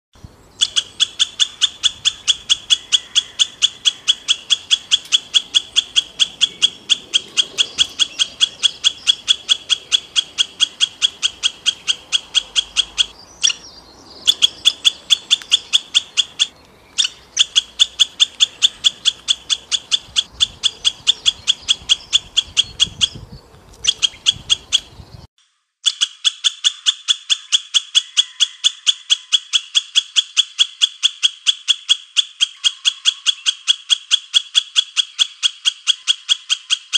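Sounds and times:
high sharp chirp: 0.5 - 23.2.

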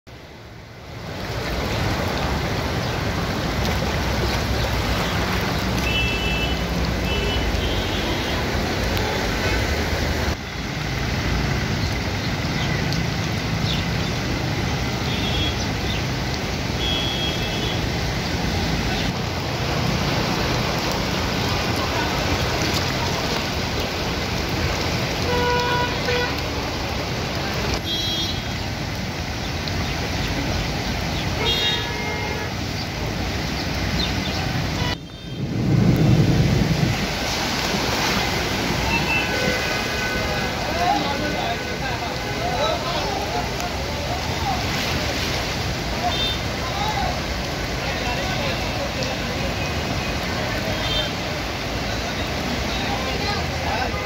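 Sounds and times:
vehicles driving through water: 0.1 - 54.0
vehicle horns tooting: 5.8 - 8.5, 15.0 - 15.7, 16.8 - 17.9, 25.2 - 26.6, 27.8 - 28.6, 31.4 - 32.6, 38.8 - 42.6, 46.1 - 46.5, 49.6 - 51.3.

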